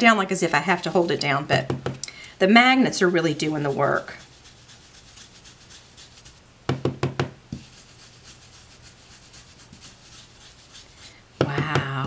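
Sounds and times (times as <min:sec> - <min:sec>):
brush dabbing on paper: 0:00.0 - 0:06.4, 0:07.5 - 0:11.2
sharp knocks: 0:06.7 - 0:07.4.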